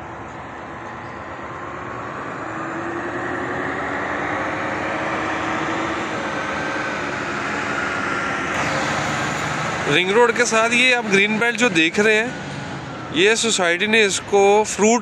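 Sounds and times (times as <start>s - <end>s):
motor vehicle engine running: 0.0s - 15.0s.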